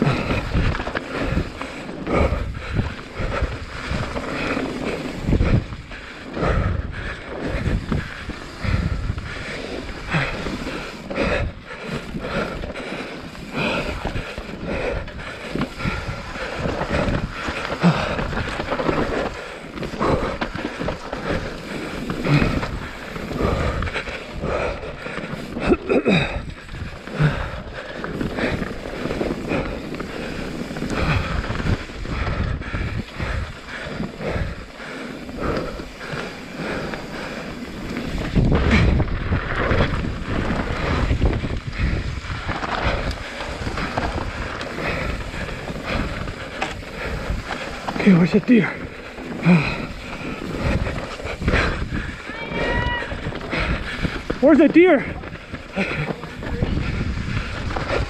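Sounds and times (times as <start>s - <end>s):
wind on microphone: 0.0s - 12.7s, 35.4s - 48.0s, 48.9s - 54.4s, 55.1s - 58.0s
bike rattling and knocking: 0.0s - 58.0s
bike tyre noise on dirt: 0.0s - 58.0s.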